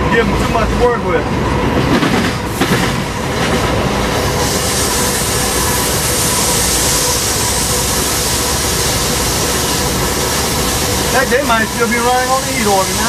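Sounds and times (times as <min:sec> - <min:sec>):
locomotive engine drone: 0:00.0 - 0:13.0.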